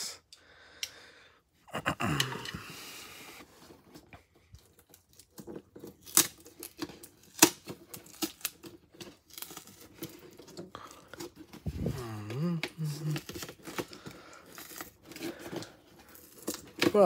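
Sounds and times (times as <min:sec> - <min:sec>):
cardboard rustling and tearing: 0:03.2 - 0:17.0
sharp cardboard snaps: 0:05.8 - 0:08.7.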